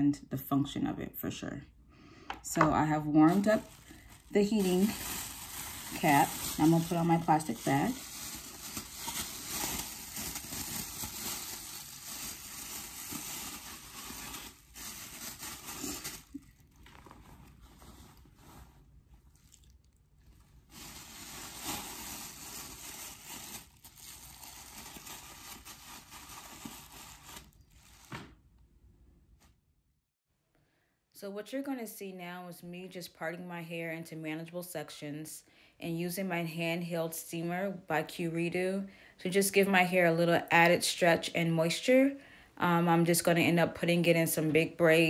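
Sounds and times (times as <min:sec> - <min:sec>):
plastic shower cap crinkling: 0:03.2 - 0:19.6, 0:20.5 - 0:28.3.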